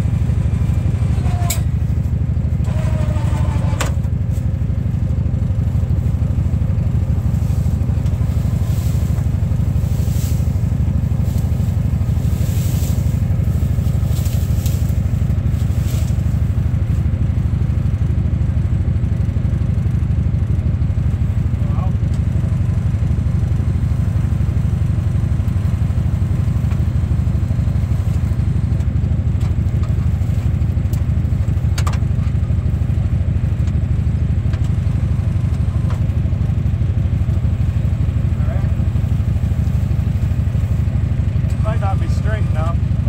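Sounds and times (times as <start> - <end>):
diesel engine running: 0.0 - 43.0
stalks scraping and rustling: 2.6 - 4.6, 7.2 - 17.0.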